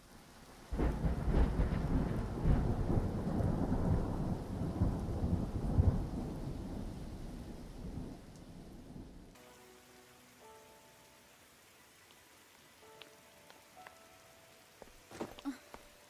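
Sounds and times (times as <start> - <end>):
rain: 0.0 - 16.0
thunder rumbling and cracking: 0.6 - 9.3.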